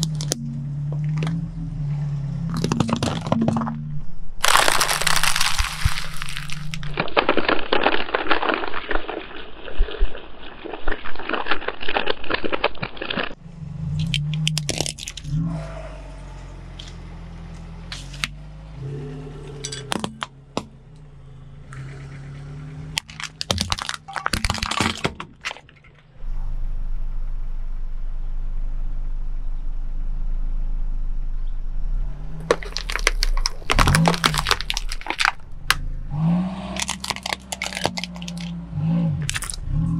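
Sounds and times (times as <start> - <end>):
plastic crushed under car tyre: 2.5 - 3.8, 4.4 - 13.4, 22.9 - 26.0, 32.4 - 35.9, 36.8 - 38.6
car engine revving: 13.4 - 23.3, 26.2 - 39.9.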